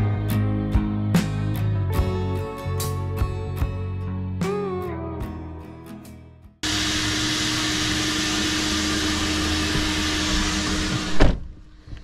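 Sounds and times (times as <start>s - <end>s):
background guitar music: 0.0s - 6.6s
car wash vacuum running: 6.6s - 11.3s.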